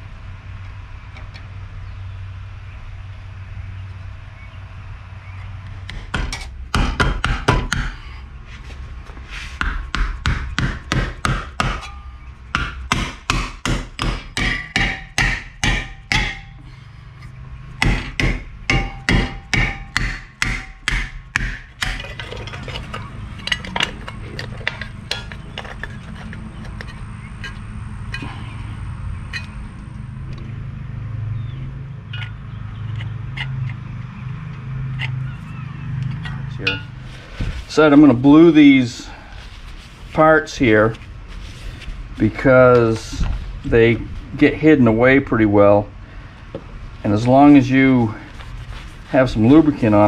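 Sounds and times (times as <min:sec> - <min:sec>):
hammer blows: 0:09.5 - 0:22.2.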